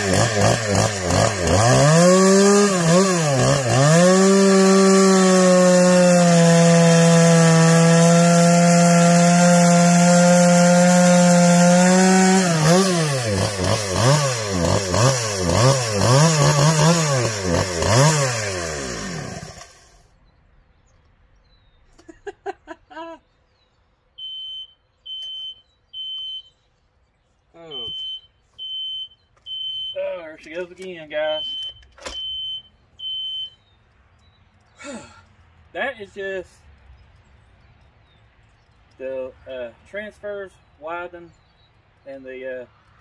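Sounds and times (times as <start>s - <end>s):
chainsaw revving: 0.0s - 20.0s.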